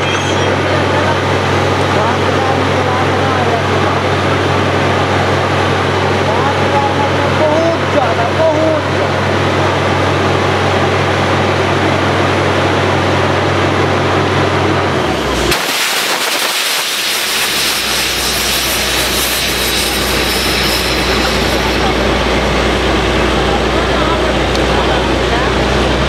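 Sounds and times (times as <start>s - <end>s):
drilling rig engine: 0.0s - 26.0s
loud rushing hiss: 15.2s - 23.9s.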